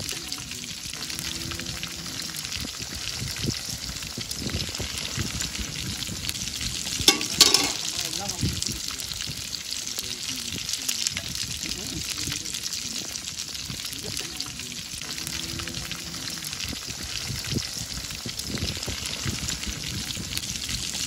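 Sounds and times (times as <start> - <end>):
food deep-frying in hot oil: 0.0 - 21.0
wire skimmer stirring oil: 7.0 - 8.3.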